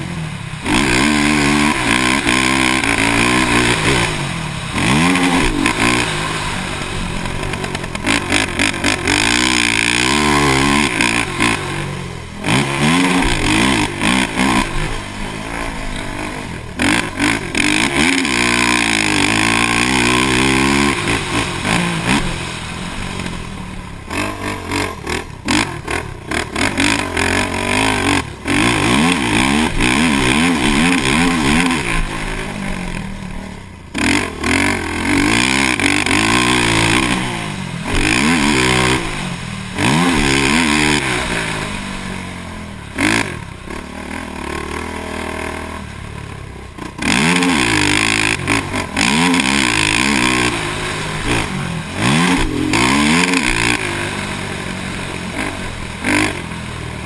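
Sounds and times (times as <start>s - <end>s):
quad engine revving: 0.0s - 57.0s.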